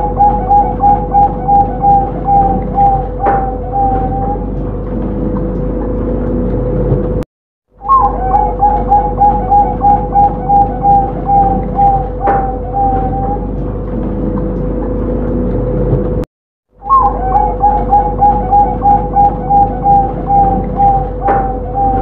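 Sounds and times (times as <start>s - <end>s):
dove cooing: 0.0s - 4.6s, 7.8s - 13.6s, 16.8s - 22.0s
steady hum: 0.0s - 7.2s, 7.8s - 16.2s, 16.8s - 22.0s.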